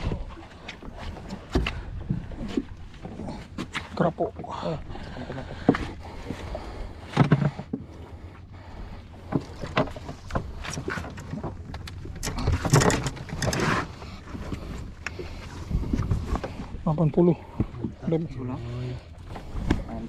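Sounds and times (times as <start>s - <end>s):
fishing tackle clicks and knocks: 9.3s - 13.6s.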